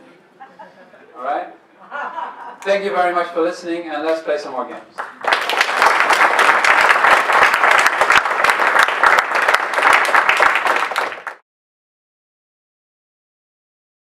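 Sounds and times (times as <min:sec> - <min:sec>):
audience applauding: 0:05.0 - 0:11.4.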